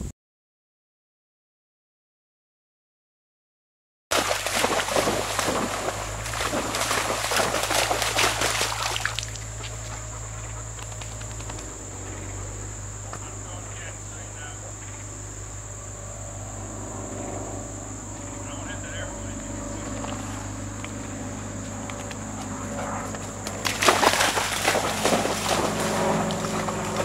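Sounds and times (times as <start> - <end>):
dog splashing through creek: 4.1 - 14.2, 22.0 - 27.0
crickets chirping: 4.1 - 27.0
insect buzz: 4.1 - 27.0.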